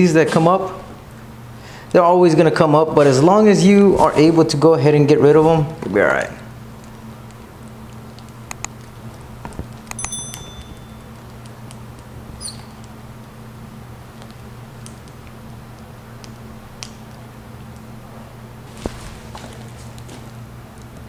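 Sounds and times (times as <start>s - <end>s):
steady low hum: 0.0s - 21.0s
small wet clicks: 6.1s - 10.1s, 14.1s - 17.9s.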